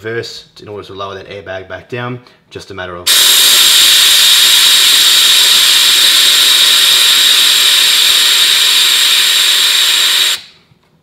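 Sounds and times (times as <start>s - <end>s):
compressed air hissing: 3.1s - 10.6s.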